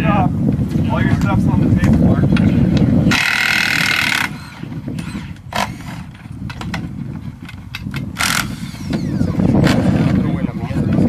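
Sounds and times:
impact wrench bursts: 3.1s - 6.1s, 8.2s - 10.1s.

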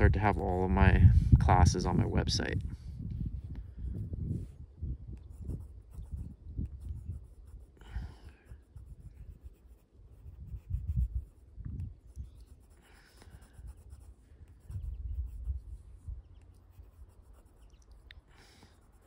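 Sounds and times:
pen nib scratching on paper: 5.2s - 11.4s, 12.0s - 15.6s, 16.3s - 19.0s.

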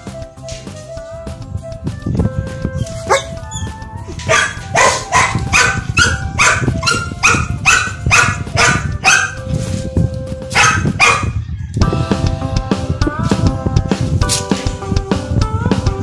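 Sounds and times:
dog barking: 3.0s - 3.4s, 4.2s - 9.5s, 10.5s - 11.4s.

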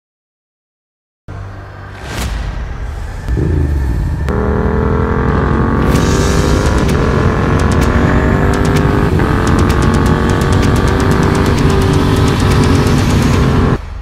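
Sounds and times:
motorcycle engine running under load: 3.4s - 13.8s.

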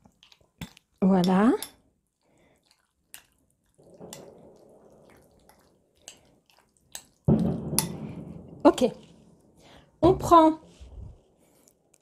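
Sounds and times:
wet squishing: 0.0s - 8.2s.

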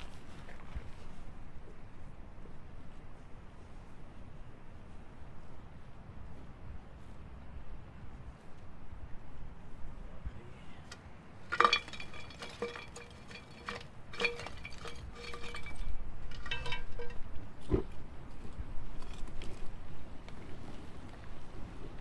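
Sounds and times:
metal can clinking against pot: 11.5s - 17.2s.

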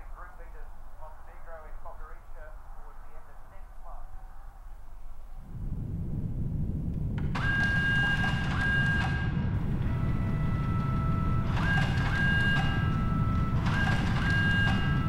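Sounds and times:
low rumbling drone: 0.0s - 15.0s
high electronic tones: 7.3s - 15.0s.

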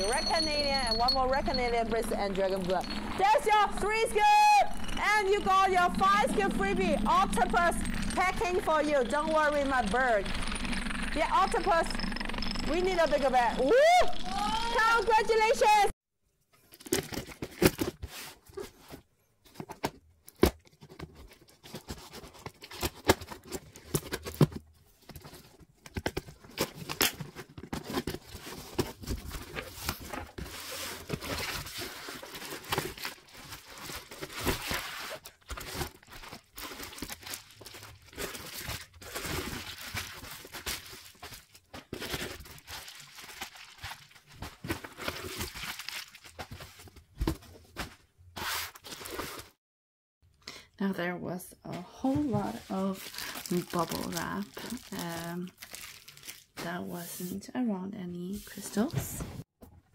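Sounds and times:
bubble wrap crinkling: 26.5s - 46.5s, 52.6s - 56.7s.

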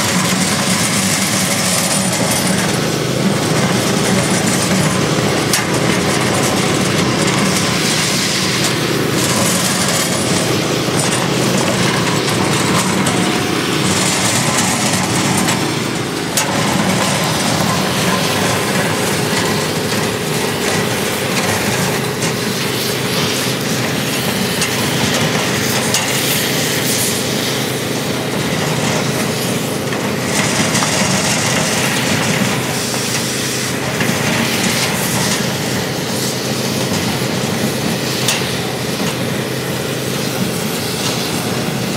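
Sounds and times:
crack-sealing machine running: 0.0s - 41.9s.

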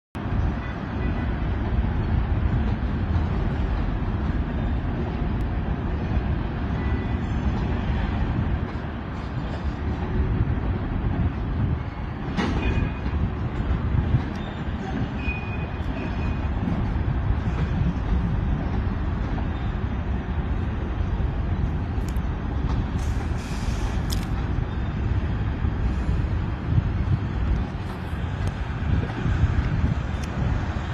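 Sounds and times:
locomotive and railcars rumbling: 0.2s - 30.9s
air hiss: 23.0s - 24.2s.

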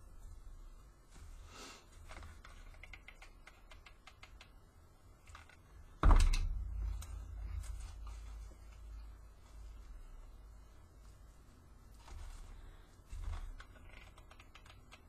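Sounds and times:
ribbon rustling: 5.2s - 15.0s
low rumble: 6.0s - 10.6s.

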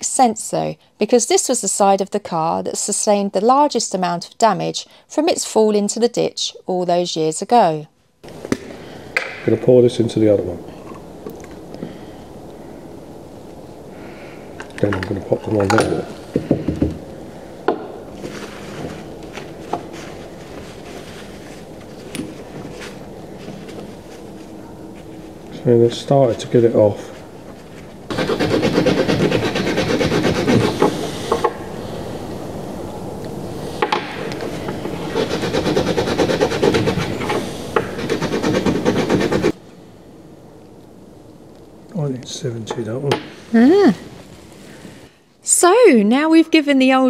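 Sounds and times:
low background noise: 0.0s - 47.0s
paper rustling: 18.2s - 25.3s
steel wool scrubbing a coin: 28.1s - 31.4s, 35.0s - 39.6s.

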